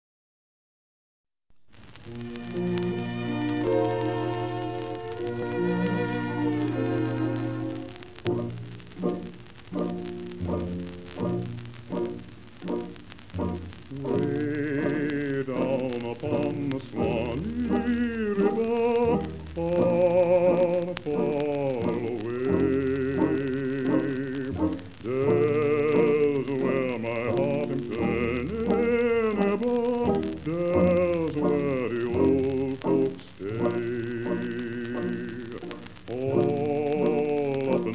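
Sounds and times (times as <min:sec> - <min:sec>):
solo voice singing with vibrato: 0:13.9 - 0:37.9.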